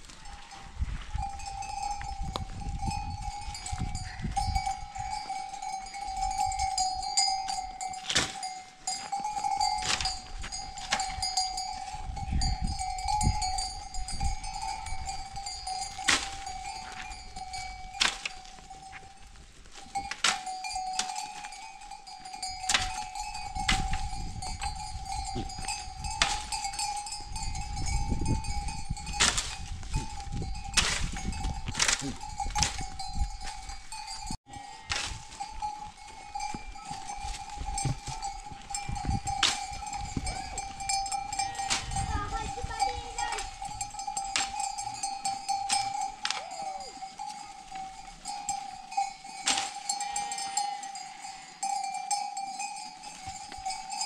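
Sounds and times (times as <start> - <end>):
sheep bells jangling: 0.0 - 54.0
stick beating tree branches: 8.0 - 8.5, 9.8 - 10.2, 15.9 - 17.0, 17.9 - 18.6, 20.1 - 21.5, 22.6 - 24.1, 26.1 - 26.7, 29.1 - 29.7, 30.7 - 33.0, 34.9 - 35.6, 39.4 - 39.8, 41.6 - 43.6, 44.2 - 45.0, 45.7 - 46.6, 49.4 - 49.9.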